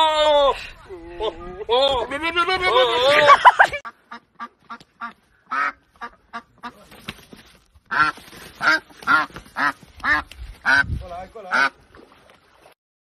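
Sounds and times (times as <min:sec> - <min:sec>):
duck quacking: 0:03.8 - 0:06.8, 0:07.9 - 0:10.9, 0:11.5 - 0:11.8.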